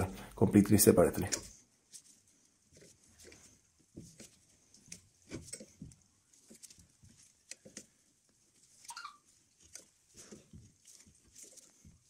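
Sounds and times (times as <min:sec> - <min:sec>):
clicks taps and scrapes of a tool: 0:01.2 - 0:02.0, 0:02.7 - 0:08.9, 0:09.5 - 0:12.0
short squeak: 0:08.8 - 0:09.3.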